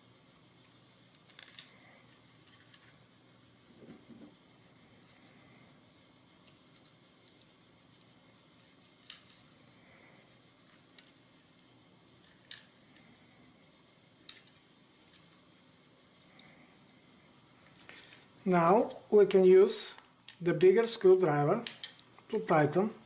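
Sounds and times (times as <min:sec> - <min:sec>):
small screws and nuts clicking: 0:01.1 - 0:02.9, 0:06.4 - 0:09.6, 0:10.6 - 0:13.1, 0:14.2 - 0:15.5, 0:21.6 - 0:22.1.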